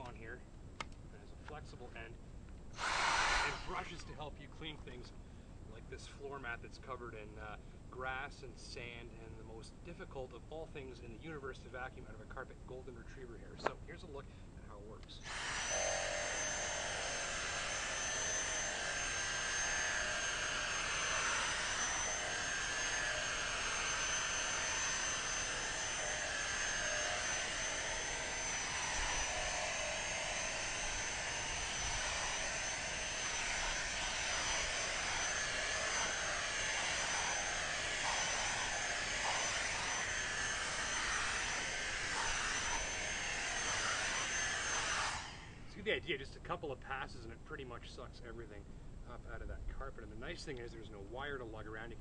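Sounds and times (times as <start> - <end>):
handheld vacuum whining: 2.8 - 4.2, 15.2 - 45.7.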